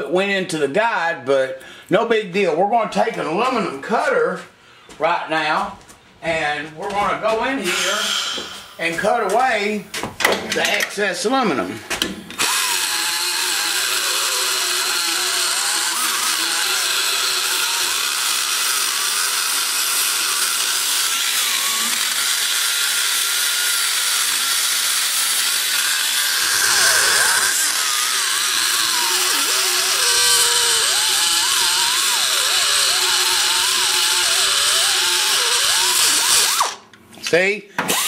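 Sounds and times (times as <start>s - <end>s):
die grinder whining: 12.0s - 37.0s.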